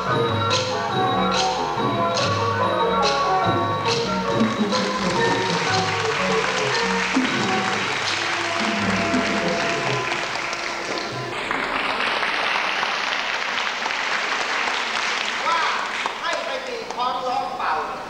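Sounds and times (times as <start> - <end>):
classical ensemble music: 0.0 - 15.4
audience applause: 4.3 - 16.7.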